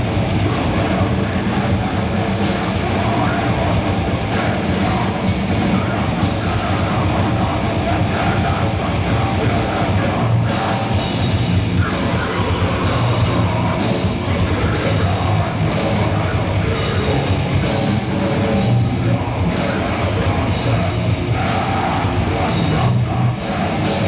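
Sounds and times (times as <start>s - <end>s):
live heavy metal band: 0.0s - 24.0s.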